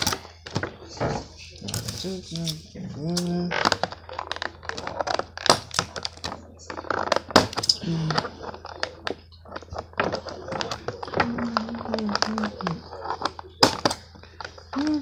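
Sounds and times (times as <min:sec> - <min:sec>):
plastic cracking: 0:00.0 - 0:15.0
person humming: 0:14.7 - 0:15.0.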